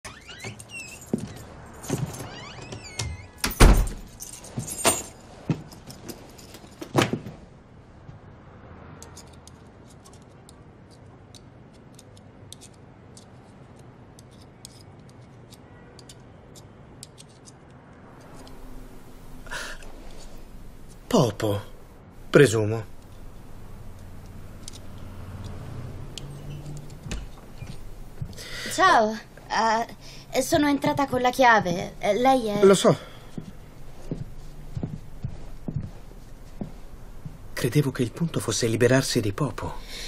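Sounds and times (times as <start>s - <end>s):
keys jangling: 3.4s - 7.1s
knitting needles clicking: 9.0s - 21.6s, 22.2s - 29.5s.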